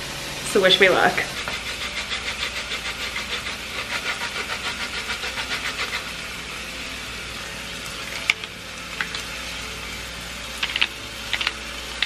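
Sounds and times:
grater scraping zest: 1.2 - 6.2
vegetables sizzling in frying pan: 5.3 - 12.0.

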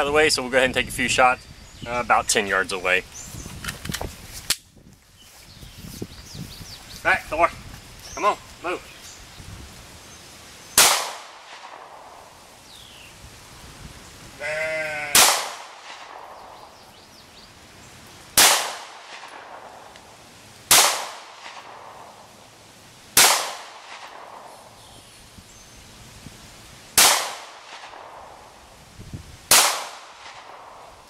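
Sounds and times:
pistol shots echoing: 10.8 - 12.4, 15.1 - 16.8, 18.4 - 20.0, 20.7 - 22.3, 23.2 - 24.8, 27.0 - 28.5, 29.5 - 31.0
sheep bleating: 14.4 - 15.2.

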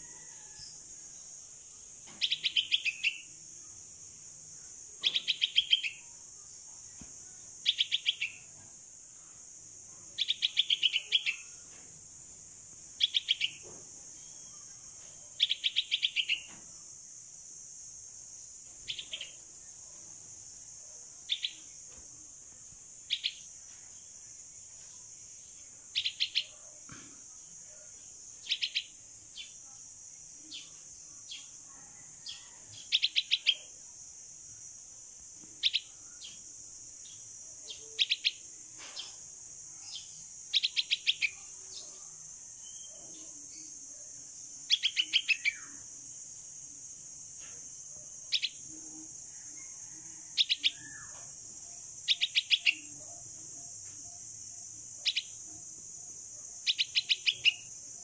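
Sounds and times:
steady high hiss: 0.0 - 58.0
bird chicks chirping: 2.1 - 3.3, 5.0 - 6.0, 7.6 - 8.5, 13.0 - 14.5, 39.8 - 42.0, 52.0 - 53.0, 56.6 - 57.7.

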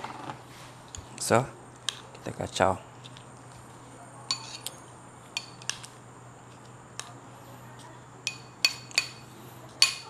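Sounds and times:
metal spoon clinking on glass bowl: 4.3 - 4.8, 8.2 - 9.2, 9.8 - 10.0.

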